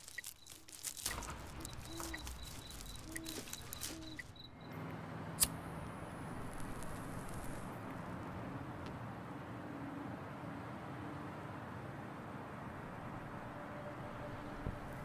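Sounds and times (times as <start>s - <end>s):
high chirping: 0.0s - 4.8s
lighter flame hissing: 6.3s - 7.7s.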